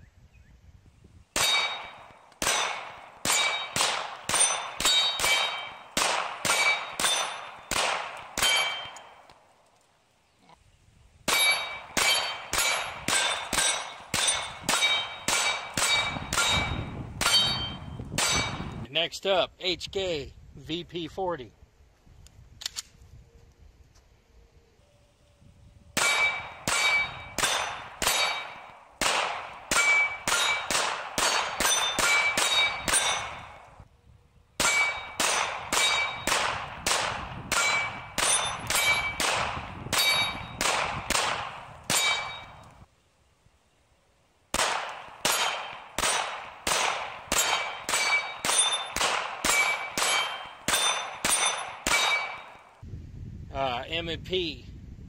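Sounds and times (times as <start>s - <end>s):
bullets ringing off steel: 1.4s - 9.3s, 11.3s - 18.8s, 26.0s - 33.8s, 34.6s - 42.9s, 44.6s - 52.8s
pistol shots: 1.4s - 9.4s, 11.3s - 18.8s, 26.0s - 33.7s, 34.6s - 42.7s, 44.5s - 52.7s.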